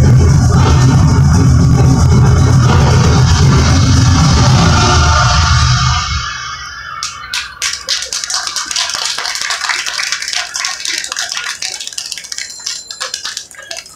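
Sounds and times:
music: 0.0s - 7.4s
audience clapping: 7.0s - 13.9s.

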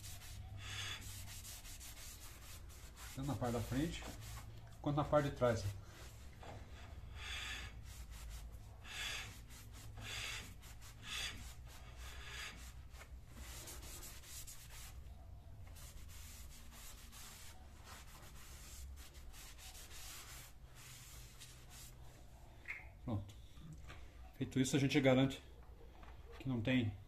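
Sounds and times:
cloth wiping metal disc: 0.0s - 6.4s.

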